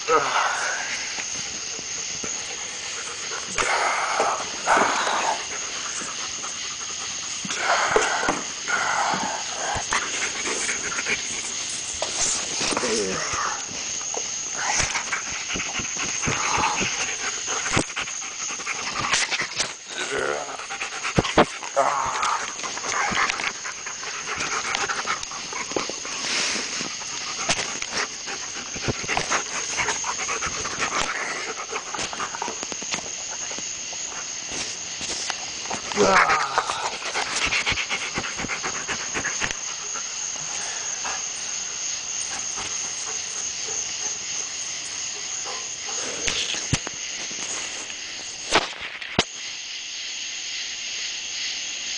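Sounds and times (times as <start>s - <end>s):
dogs panting and sniffing: 0.6s - 48.6s.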